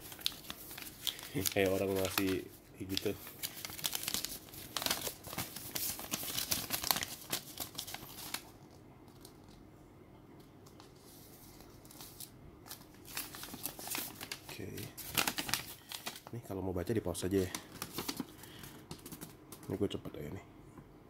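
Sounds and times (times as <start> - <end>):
paper crinkling: 0.0 - 9.6, 10.6 - 16.4, 17.3 - 19.8.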